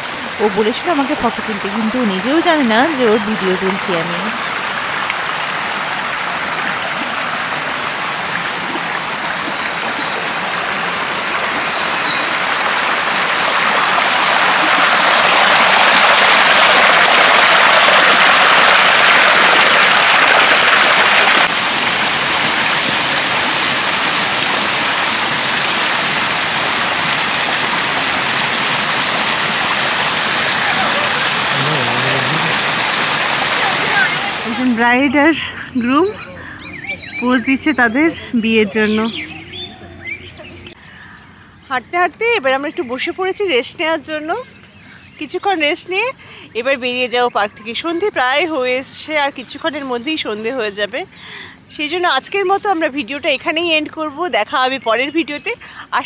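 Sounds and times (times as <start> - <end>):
stream rushing over boulders: 0.0 - 34.8.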